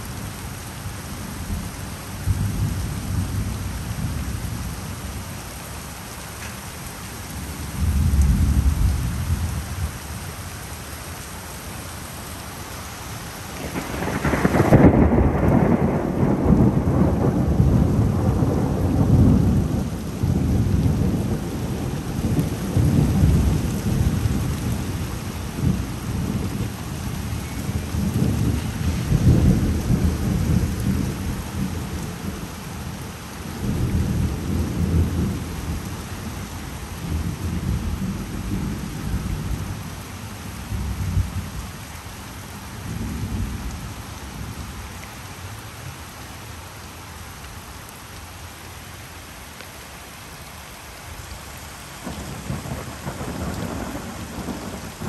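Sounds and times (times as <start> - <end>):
rain hiss: 0.0 - 55.0
rolling thunder: 13.6 - 24.8, 27.5 - 32.4, 52.0 - 55.0.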